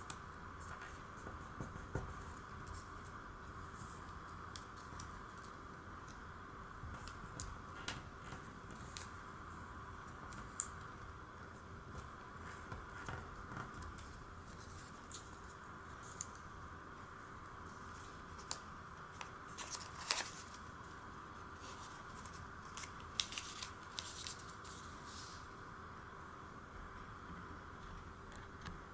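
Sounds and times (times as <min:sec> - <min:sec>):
paper rustling and crinkling: 0:18.0 - 0:20.7, 0:21.6 - 0:25.4.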